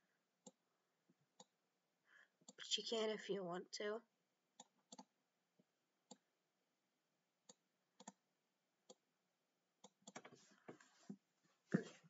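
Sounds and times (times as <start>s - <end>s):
computer mouse clicks: 4.6s - 5.1s, 7.5s - 8.2s, 9.8s - 10.4s.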